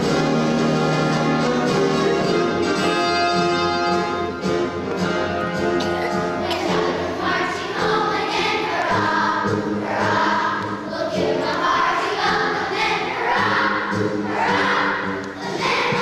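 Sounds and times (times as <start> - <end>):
children's choir singing: 5.5 - 16.0.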